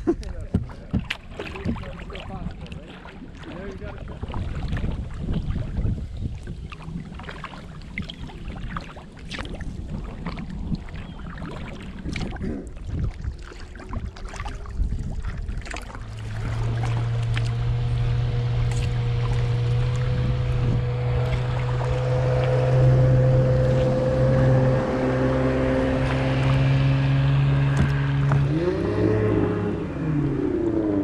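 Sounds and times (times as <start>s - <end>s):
water lapping at hull: 0.0s - 31.0s
wind rumbling on microphone: 0.0s - 31.0s
paddle strokes splashing: 0.1s - 31.0s
steady low drone: 15.5s - 31.0s.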